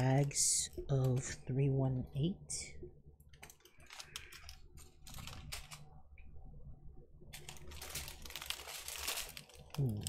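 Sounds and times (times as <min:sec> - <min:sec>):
plastic bags crinkling: 0:03.4 - 0:06.0, 0:07.3 - 0:10.0.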